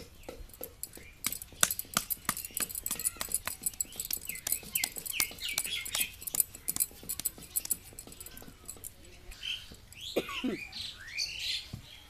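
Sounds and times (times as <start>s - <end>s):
quick taps on clay pot: 0.0s - 9.0s
small bird chirping: 0.0s - 12.0s.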